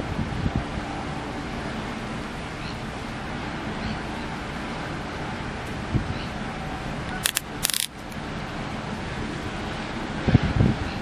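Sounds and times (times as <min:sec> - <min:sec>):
wind on microphone: 0:00.0 - 0:01.1, 0:05.8 - 0:06.3, 0:10.1 - 0:11.0
sharp crackles: 0:07.2 - 0:08.1.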